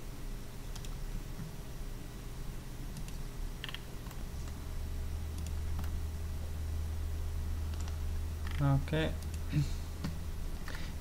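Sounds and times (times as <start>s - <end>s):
steady low hum: 0.0s - 11.0s
computer mouse clicks: 0.7s - 1.5s, 2.9s - 4.6s, 5.3s - 6.0s, 7.7s - 10.8s.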